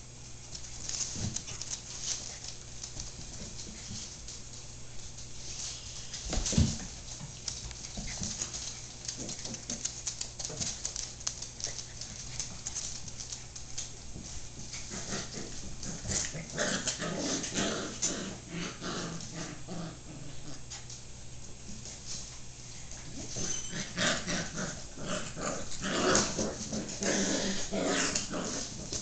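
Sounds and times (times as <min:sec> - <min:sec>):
paws scuffling on wooden floor: 0:00.2 - 0:18.2, 0:20.4 - 0:29.0
puppies growling and whimpering: 0:14.7 - 0:20.7, 0:23.0 - 0:29.0.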